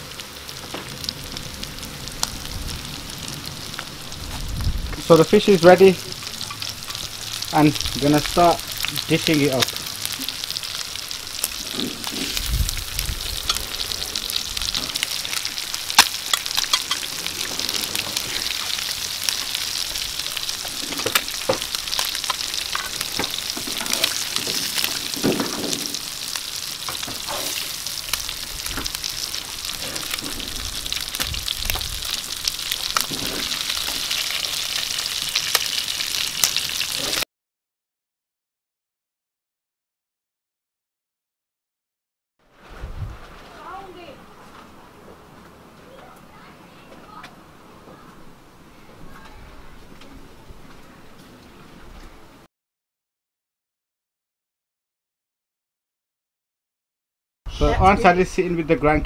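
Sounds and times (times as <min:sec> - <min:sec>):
fish sizzling in hot oil: 0:00.0 - 0:37.2
metal spatula scraping pan: 0:16.3 - 0:18.7.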